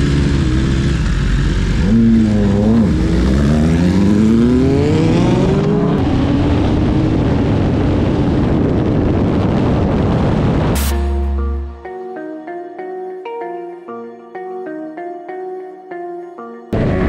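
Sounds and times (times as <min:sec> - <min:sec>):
motorcycle engine revving: 0:00.0 - 0:08.2.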